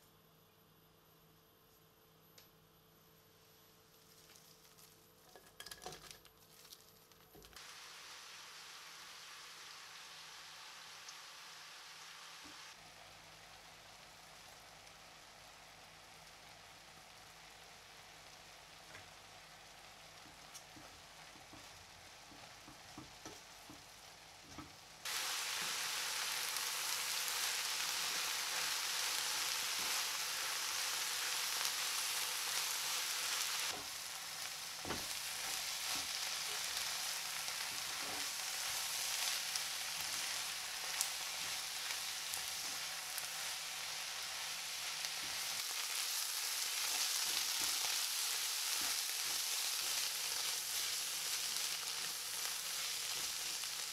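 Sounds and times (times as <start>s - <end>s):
onions sizzling in a pan: 3.1s - 5.4s, 6.2s - 53.9s
wooden spatula scraping onions: 34.8s - 39.4s, 46.8s - 52.0s.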